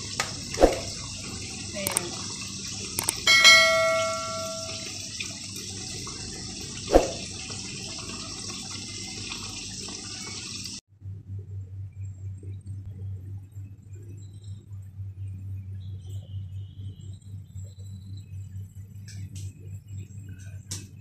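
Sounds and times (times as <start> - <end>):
electronic chime: 3.0 - 5.0
low pulsing hum: 10.9 - 21.0.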